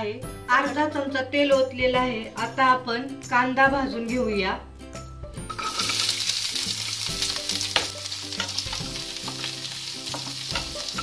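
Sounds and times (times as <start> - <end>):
onions sizzling in hot oil: 5.5 - 11.0.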